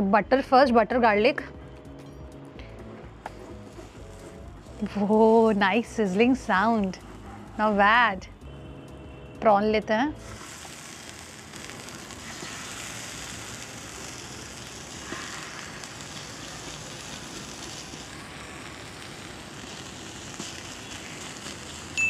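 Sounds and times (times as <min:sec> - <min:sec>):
prawns sizzling on a grill: 0:03.3 - 0:08.2, 0:10.2 - 0:22.0
small pops: 0:10.2 - 0:21.9.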